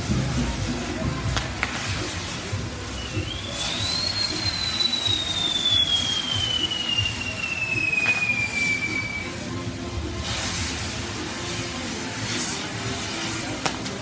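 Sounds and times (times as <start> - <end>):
firework wheel hissing: 0.0 - 14.0
falling pyrotechnic whistle: 2.4 - 9.7
sharp pops: 3.2 - 9.2.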